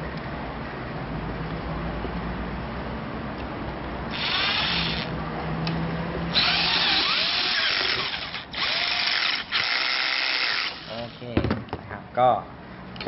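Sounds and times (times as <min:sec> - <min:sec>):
cordless drill driving screws: 0:04.1 - 0:05.1, 0:06.3 - 0:11.2.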